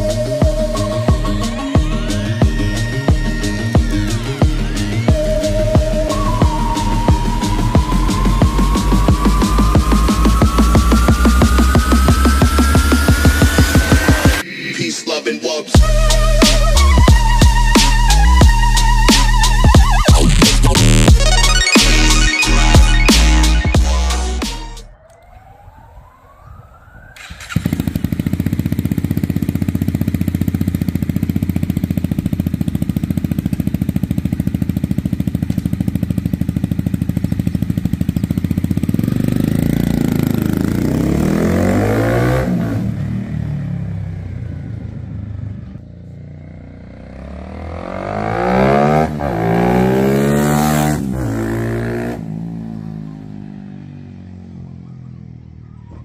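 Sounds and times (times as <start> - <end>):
motorbike engine revving: 0.0 - 14.4, 27.2 - 54.7.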